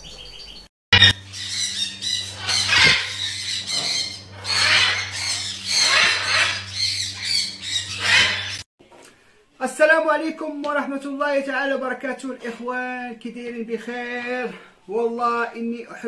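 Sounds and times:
macaw squawking: 0:01.0 - 0:08.6
steady low hum: 0:01.0 - 0:08.6.

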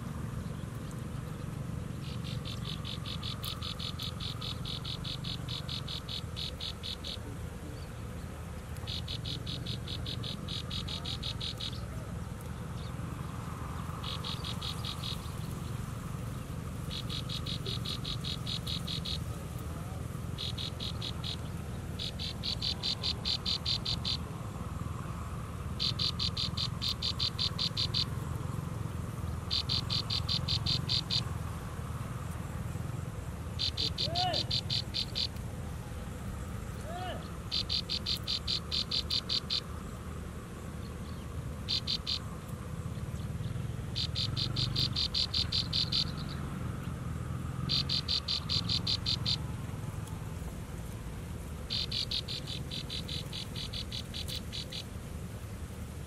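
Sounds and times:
steady low rumble: 0:00.0 - 0:34.0
insect trilling: 0:00.0 - 0:46.5, 0:47.3 - 0:56.0.

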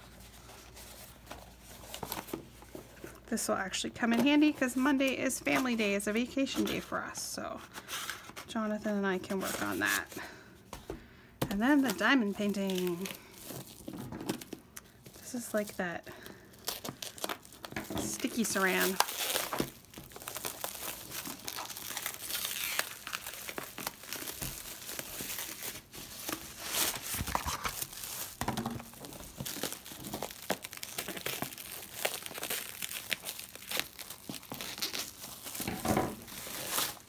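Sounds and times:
plastic wrap crinkling and tearing: 0:11.6 - 0:37.0.

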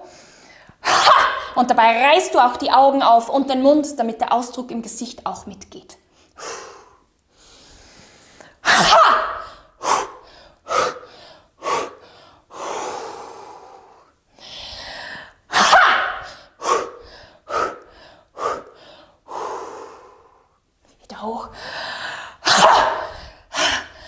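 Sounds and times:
woman breathing forcefully: 0:00.0 - 0:01.6, 0:06.2 - 0:20.6, 0:21.5 - 0:24.0
woman shouting: 0:00.9 - 0:01.5.

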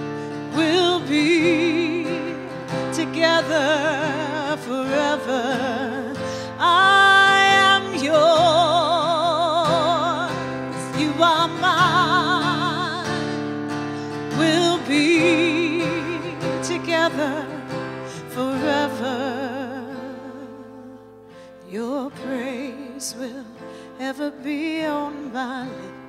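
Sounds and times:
strummed acoustic guitar: 0:00.0 - 0:26.0
woman singing: 0:00.0 - 0:26.0.

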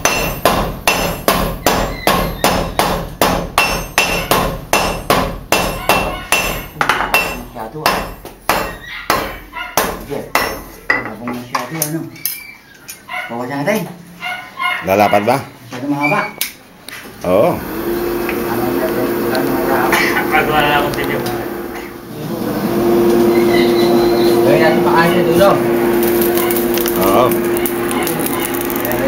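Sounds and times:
hammers ringing on anvil: 0:00.0 - 0:11.1.

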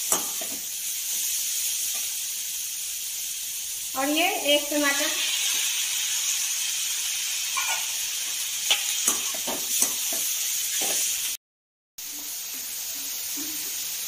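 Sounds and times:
vegetables sizzling in oil: 0:00.0 - 0:11.4, 0:12.0 - 0:14.0.

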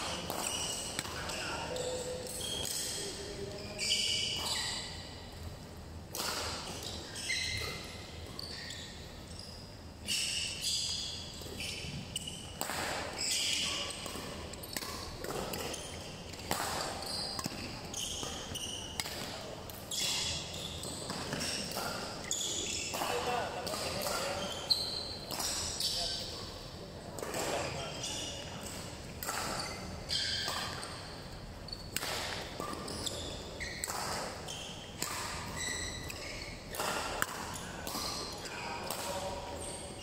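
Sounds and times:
shoes squeaking on court: 0:00.0 - 0:05.4, 0:06.2 - 0:26.6, 0:27.2 - 0:40.0
racket striking shuttlecock: 0:06.1 - 0:06.8, 0:12.6 - 0:18.4, 0:25.3 - 0:25.7, 0:28.7 - 0:29.6, 0:30.3 - 0:30.9, 0:31.9 - 0:32.9, 0:33.8 - 0:39.2.

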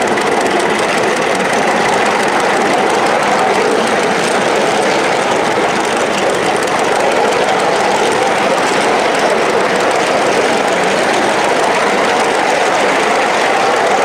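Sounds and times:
steam locomotive engine working: 0:00.0 - 0:14.0
wheels running on track: 0:00.0 - 0:14.0.

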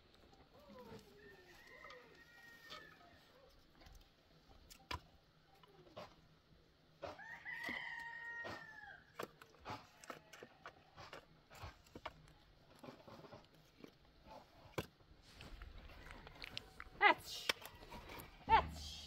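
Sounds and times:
rooster crowing: 0:01.2 - 0:03.1, 0:07.2 - 0:09.1.

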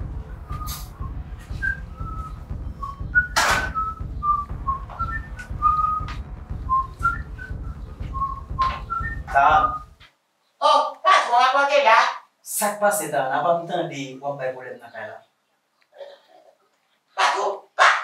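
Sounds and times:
low rumble: 0:00.0 - 0:10.0
person whistling a tune: 0:00.5 - 0:09.9.

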